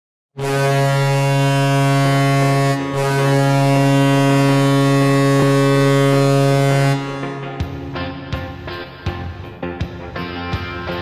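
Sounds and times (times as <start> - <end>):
goal horn blasting: 0.4 - 8.3.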